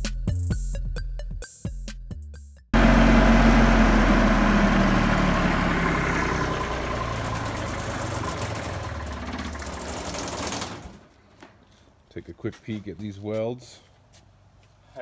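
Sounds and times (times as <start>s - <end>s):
welding generator engine running: 2.8s - 11.1s.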